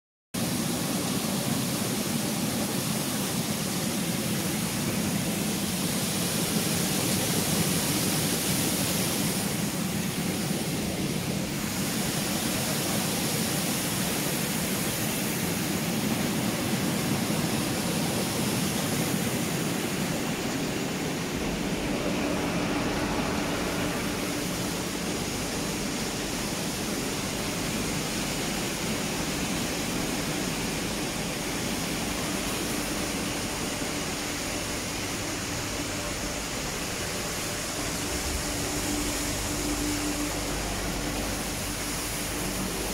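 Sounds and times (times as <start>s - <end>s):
conveyor machinery: 0.4s - 42.9s
aerated water churning: 1.3s - 42.9s
deep machine hum with tone: 17.8s - 42.9s.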